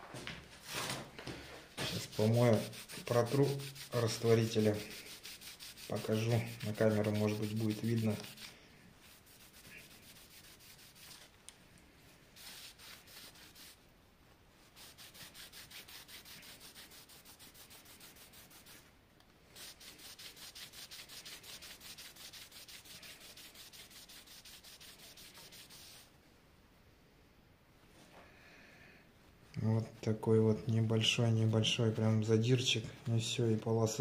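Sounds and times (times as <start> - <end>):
cloth rag rubbing on steel blade: 1.8 - 11.4, 12.4 - 13.9, 14.6 - 18.9, 19.5 - 26.1.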